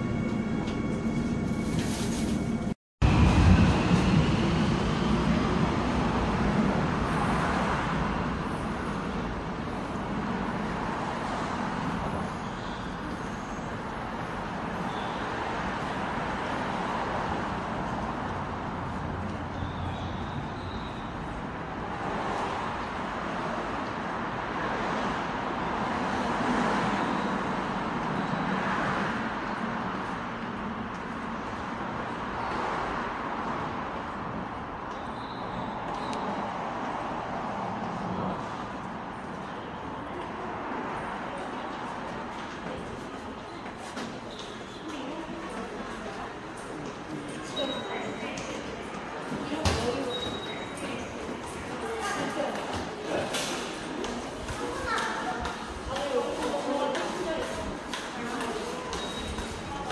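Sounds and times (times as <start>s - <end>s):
station ambience: 0.0s - 22.0s
road traffic hum: 0.0s - 59.9s.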